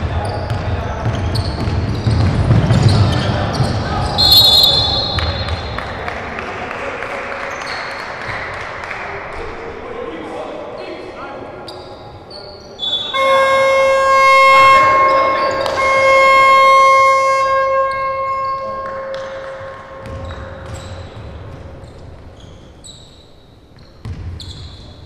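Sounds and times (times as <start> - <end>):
basketball bouncing: 0.0 - 5.8, 17.7 - 22.4, 23.7 - 24.9
shoe squeaks on court: 0.1 - 5.8, 11.7 - 13.7, 17.3 - 25.0
arena horn blasts: 12.8 - 21.0.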